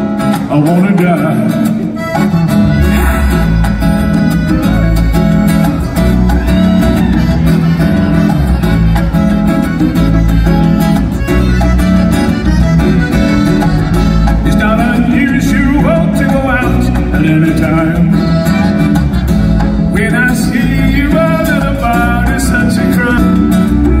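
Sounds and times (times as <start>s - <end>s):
live band playing amplified music: 0.0s - 24.0s
person singing: 2.6s - 5.0s, 14.3s - 18.5s, 19.9s - 24.0s.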